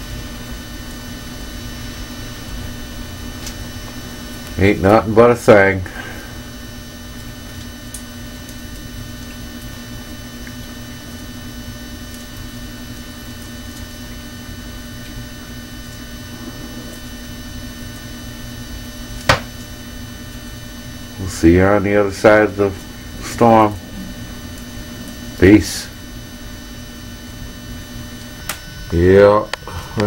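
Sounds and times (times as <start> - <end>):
electrical hum: 0.0 - 30.0
low rumble: 15.2 - 21.2, 22.8 - 28.4.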